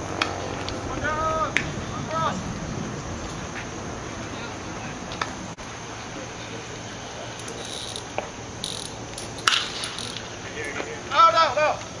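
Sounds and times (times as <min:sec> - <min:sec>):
insects chirping: 0:00.0 - 0:12.0
sharp crack of ball: 0:09.4 - 0:10.0.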